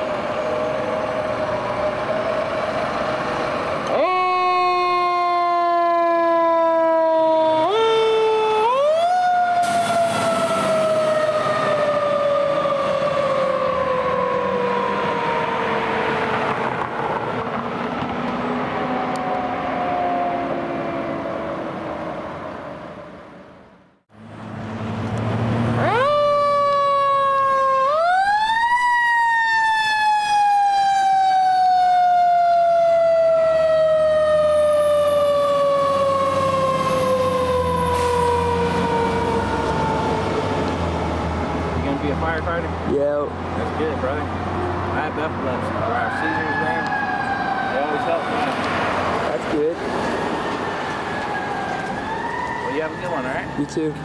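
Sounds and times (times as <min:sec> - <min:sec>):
diesel engine noise: 0:08.6 - 0:54.0.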